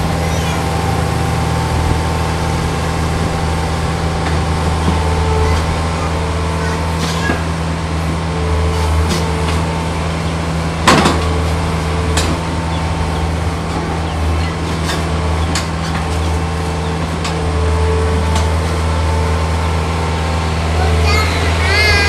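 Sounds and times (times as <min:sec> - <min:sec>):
excavator diesel engine running: 0:00.0 - 0:22.0
higher hum: 0:18.9 - 0:22.0.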